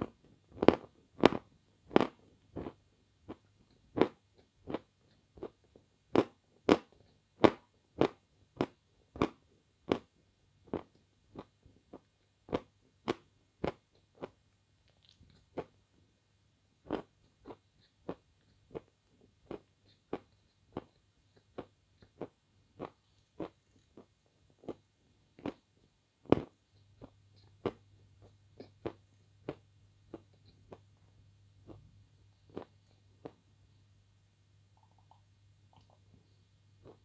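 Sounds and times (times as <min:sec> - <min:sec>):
chewing clicks: 0:14.2 - 0:15.7
wet mouth smacks: 0:34.8 - 0:36.0.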